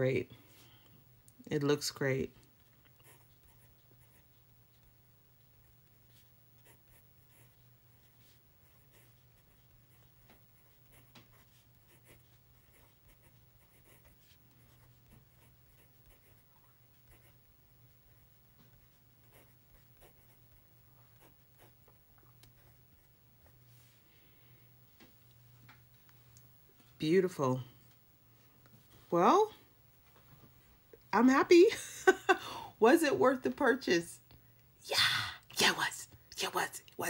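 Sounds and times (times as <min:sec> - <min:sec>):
low steady hum: 0:00.0 - 0:37.0
fountain pen scratching on paper: 0:03.0 - 0:04.8, 0:05.8 - 0:21.8.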